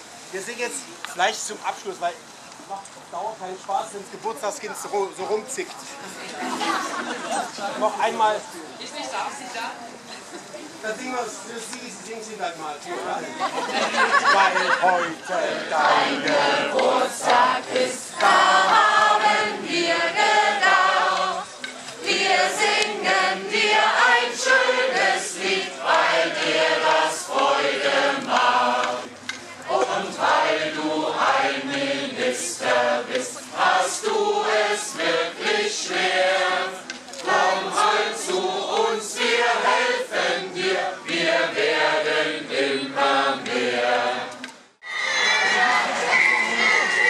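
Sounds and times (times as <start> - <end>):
group singing a birthday tune: 13.4 - 44.7.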